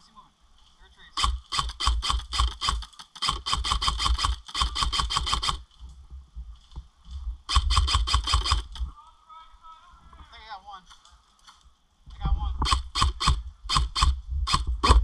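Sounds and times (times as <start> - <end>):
airsoft rifle firing full auto: 1.2 - 5.6, 7.5 - 8.7.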